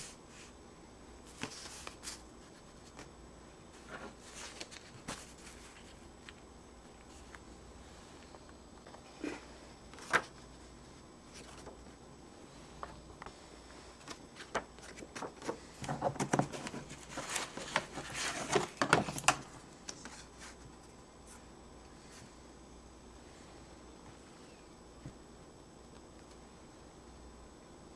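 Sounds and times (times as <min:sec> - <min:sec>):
paper rustling: 0:01.3 - 0:03.1, 0:03.7 - 0:06.4, 0:09.9 - 0:10.4, 0:11.3 - 0:11.8, 0:14.0 - 0:20.7.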